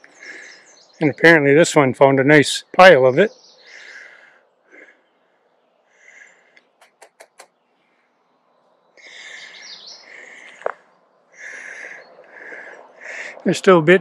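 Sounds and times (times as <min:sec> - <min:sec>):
birds chirping: 0:00.0 - 0:14.0
sharp clicks: 0:06.6 - 0:07.5.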